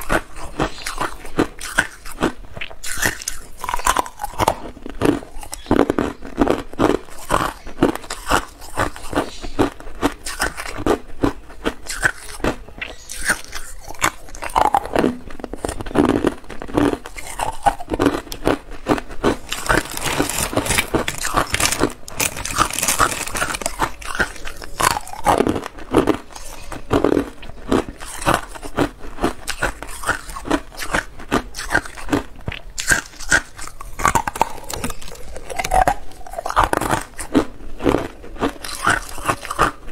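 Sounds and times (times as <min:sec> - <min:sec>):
ice cubes crunching: 0:00.0 - 0:12.5, 0:13.1 - 0:32.2, 0:32.8 - 0:39.8
plastic bag rustling: 0:18.9 - 0:25.8.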